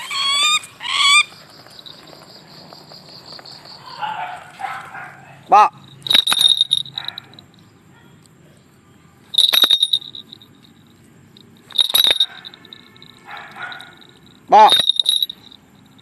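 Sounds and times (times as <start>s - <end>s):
small metal bell jingling: 1.3s - 4.8s, 5.7s - 7.8s, 9.3s - 16.0s.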